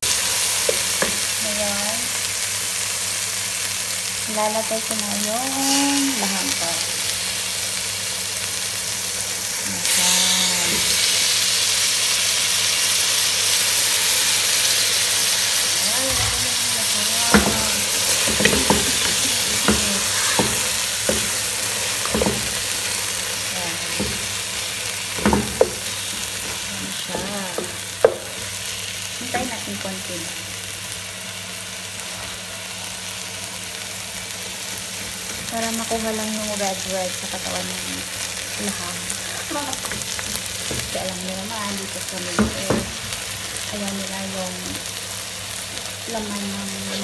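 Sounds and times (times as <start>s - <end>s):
food sizzling in a pot: 0.0s - 47.0s
wooden spatula stirring and scraping: 17.3s - 28.6s
spatula knocking against pot: 18.2s - 21.4s, 25.2s - 28.5s.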